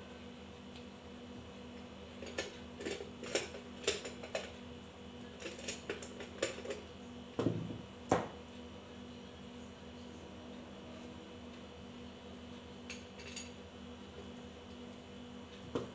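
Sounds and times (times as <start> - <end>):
steady low hum: 0.0 - 15.9.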